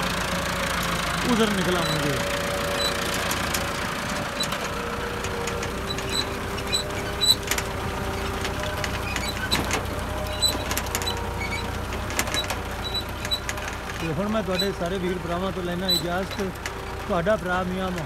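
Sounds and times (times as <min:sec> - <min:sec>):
tractor diesel engine running: 0:00.0 - 0:18.0
metal clicks and knocks: 0:02.6 - 0:17.1.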